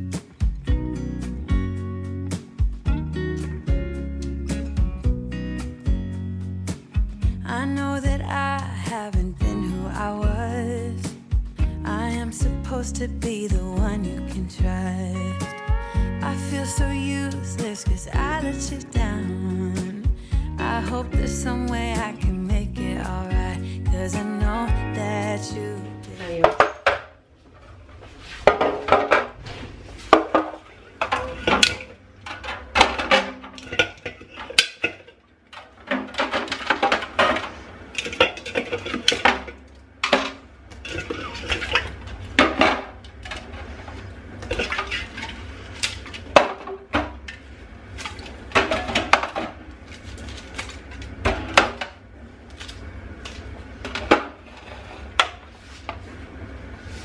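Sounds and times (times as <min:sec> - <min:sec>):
dishes and cutlery clinking: 0:35.9 - 0:43.6.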